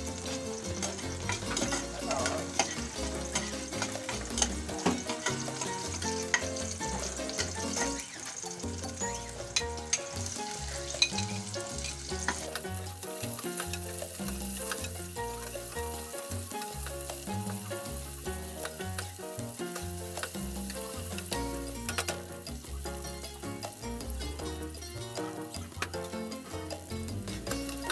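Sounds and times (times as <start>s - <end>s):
background music: 0.0s - 27.9s
onions sizzling in oil: 0.0s - 27.9s
metal ladle scraping pot: 0.2s - 15.6s.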